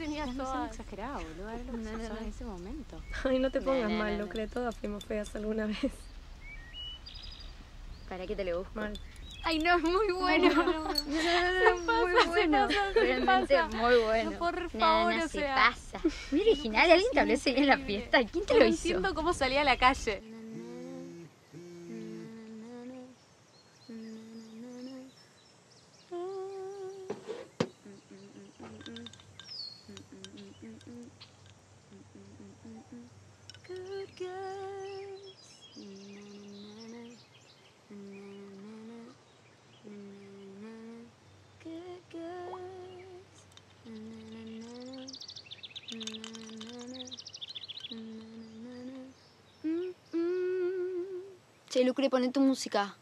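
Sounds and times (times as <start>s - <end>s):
faint bird chirps: 0.0s - 53.0s
person humming a slow tune: 20.2s - 23.2s, 23.8s - 25.2s, 26.1s - 29.2s, 29.9s - 31.2s, 31.9s - 37.2s, 37.9s - 39.2s, 39.8s - 45.2s, 45.9s - 47.2s, 47.8s - 51.4s.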